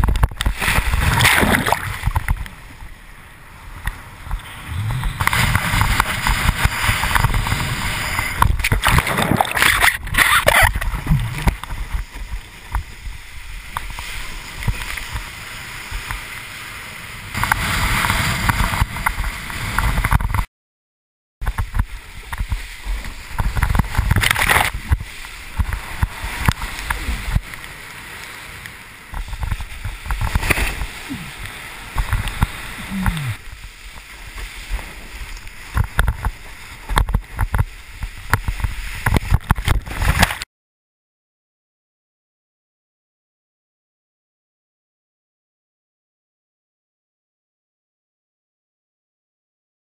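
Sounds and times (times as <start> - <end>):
water rushing and splashing: 0.0 - 20.5, 21.4 - 40.5.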